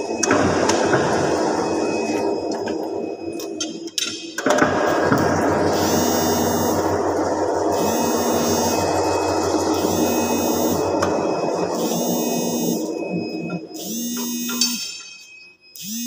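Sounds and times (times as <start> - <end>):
heavy lathe running: 4.4 - 14.6
low hum: 4.5 - 15.4
high tone: 5.7 - 16.0.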